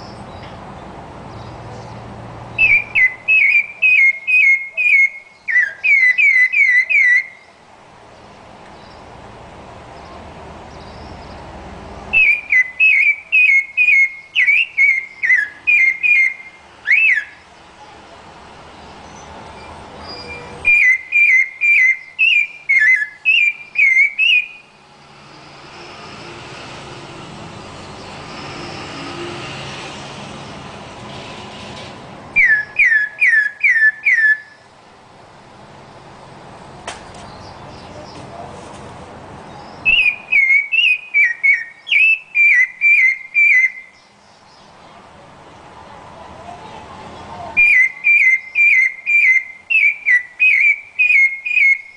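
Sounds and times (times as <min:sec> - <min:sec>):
thrush singing whistled notes: 0:02.5 - 0:07.6, 0:12.1 - 0:17.5, 0:19.0 - 0:26.8, 0:32.3 - 0:34.7, 0:39.5 - 0:44.7, 0:47.6 - 0:51.9.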